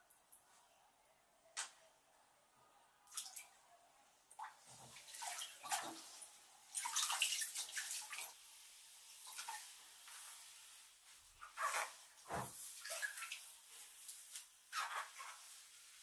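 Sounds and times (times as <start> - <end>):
water sloshing in a bathtub: 3.0 - 16.0
water dripping off wet clothing: 3.1 - 3.6, 4.3 - 8.4, 11.4 - 16.0.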